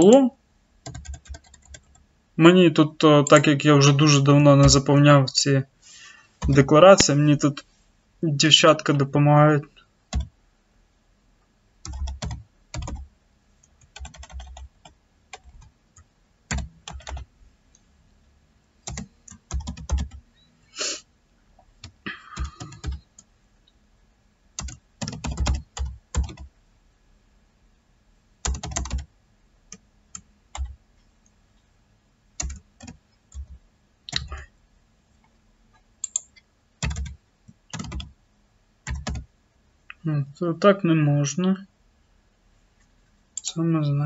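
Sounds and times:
typing on computer keyboard: 0.8s - 2.0s, 10.1s - 10.3s, 11.8s - 13.1s, 13.8s - 15.7s, 16.5s - 17.3s, 18.8s - 20.2s, 21.8s - 23.3s, 24.6s - 26.5s, 28.4s - 29.1s, 29.7s - 30.8s, 32.4s - 34.4s, 36.0s - 38.1s, 38.8s - 39.3s.

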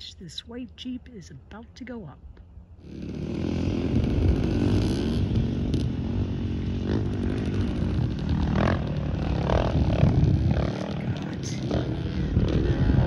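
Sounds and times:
dirt bike engines revving: 2.8s - 13.0s.

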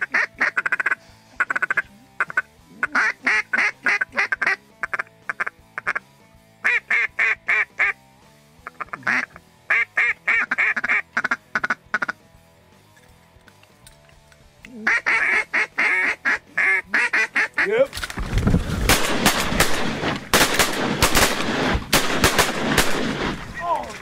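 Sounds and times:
duck call quacks: 0.0s - 8.0s, 8.6s - 12.2s, 14.8s - 17.7s.

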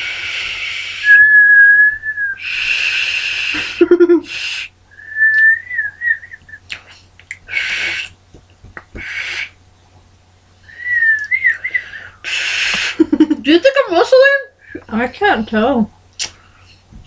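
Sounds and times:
person whistling: 0.9s - 2.5s, 4.9s - 6.7s, 10.7s - 12.1s.

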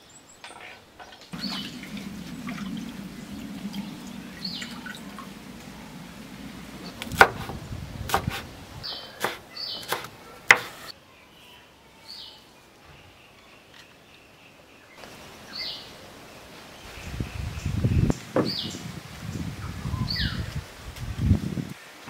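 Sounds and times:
cleaver chopping on wooden board: 7.1s - 8.4s, 9.2s - 10.9s.

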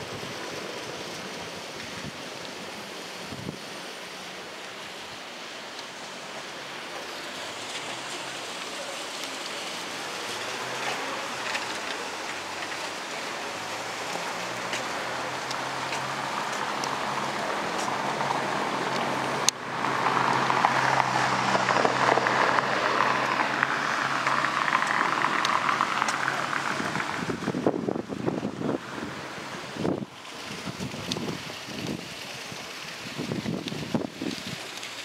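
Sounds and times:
wind on microphone: 3.2s - 3.8s, 25.3s - 34.7s.

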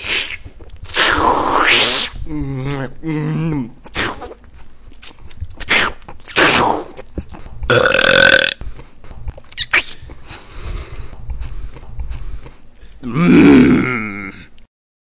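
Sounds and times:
man belching and gagging: 7.7s - 8.6s, 13.0s - 14.6s.

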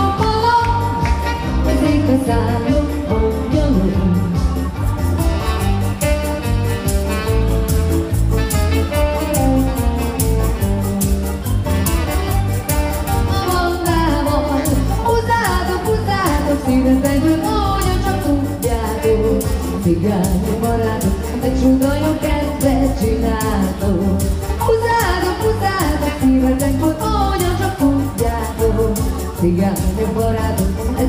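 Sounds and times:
person singing: 0.0s - 5.8s, 13.2s - 31.0s
keyboard playing dance tune: 0.0s - 31.0s
saxophone: 0.0s - 31.0s.

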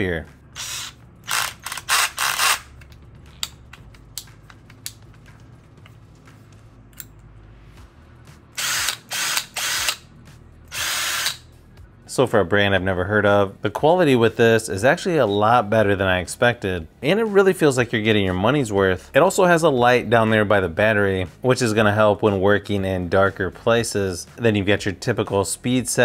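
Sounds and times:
drill chuck ratcheting: 0.6s - 2.7s, 8.6s - 10.0s, 10.7s - 11.4s.

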